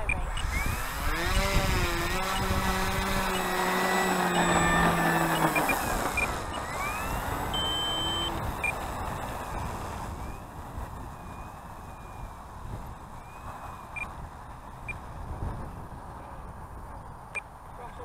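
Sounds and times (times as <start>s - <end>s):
model plane electric motor buzzing: 0.0s - 14.2s.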